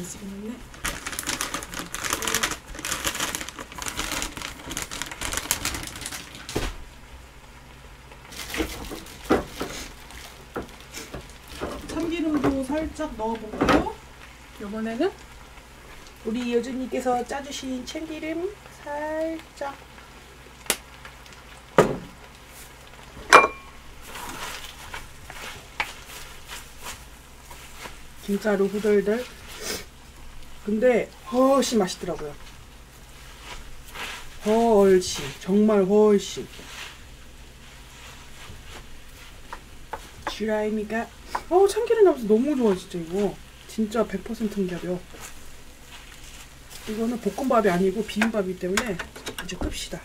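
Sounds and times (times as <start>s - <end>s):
faint sizzle: 0.0s - 50.0s
plastic bag crinkling: 0.4s - 6.8s, 8.2s - 12.4s, 36.4s - 48.8s
spoon stirring and scraping a pan: 41.2s - 41.6s.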